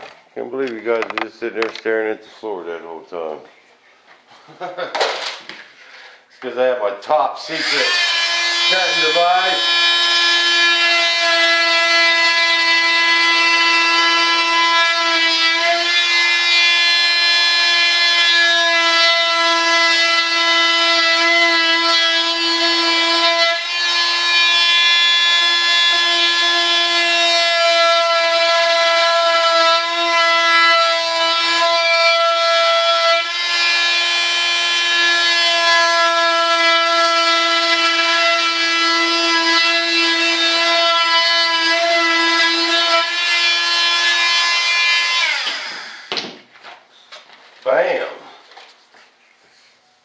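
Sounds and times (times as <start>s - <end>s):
oscillating saw buzzing: 7.4s - 46.2s.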